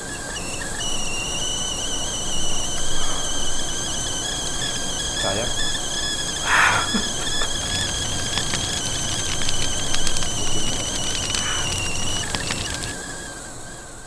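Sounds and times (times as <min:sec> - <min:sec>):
high-pitched wavering whistle: 0:00.0 - 0:14.0
burst of hiss: 0:00.8 - 0:12.7.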